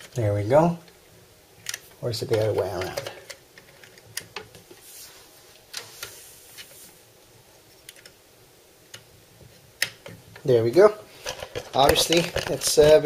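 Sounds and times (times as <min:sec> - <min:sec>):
cable rustling: 0:11.2 - 0:13.0.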